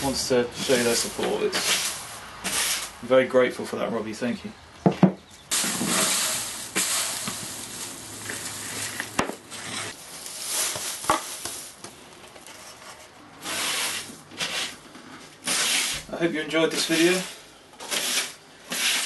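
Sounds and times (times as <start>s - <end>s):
brush sweeping concrete floor: 0.6s - 3.0s, 5.5s - 11.8s, 13.4s - 19.0s.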